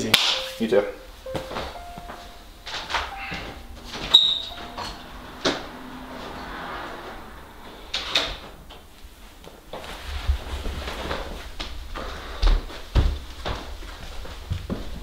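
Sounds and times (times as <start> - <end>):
door opening and shutting: 1.4 - 6.1.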